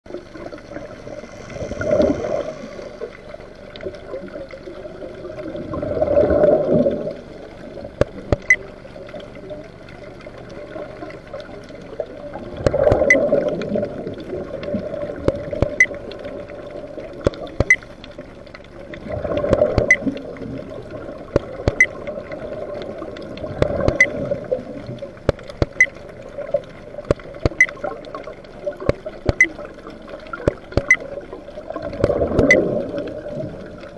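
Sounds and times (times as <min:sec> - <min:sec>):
steady watery rumble: 0:00.0 - 0:33.9
gurgle of exhaled bubbles: 0:00.1 - 0:33.9
diver breathing through regulator: 0:01.0 - 0:03.1
sharp clicks: 0:08.0 - 0:08.7, 0:15.2 - 0:16.0, 0:17.2 - 0:18.7, 0:19.4 - 0:20.2, 0:21.3 - 0:22.0, 0:23.5 - 0:24.2, 0:25.2 - 0:26.0, 0:27.0 - 0:28.2, 0:28.8 - 0:29.6, 0:30.4 - 0:31.0.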